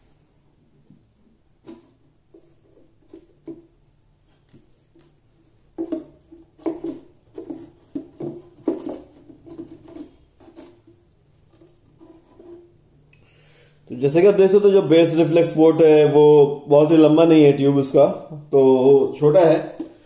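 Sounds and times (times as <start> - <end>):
board knocking and scraping on cabinet: 5.7 - 12.7.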